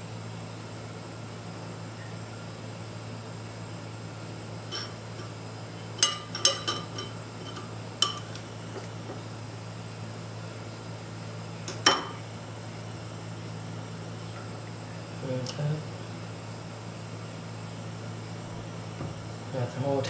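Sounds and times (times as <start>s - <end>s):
ceramic bowls clinking: 6.0s - 8.4s.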